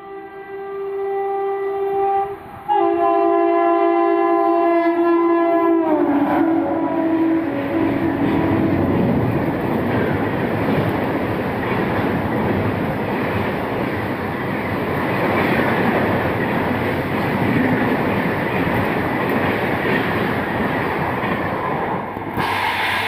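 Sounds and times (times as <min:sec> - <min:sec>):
train coaches rushing past: 0:06.2 - 0:23.0.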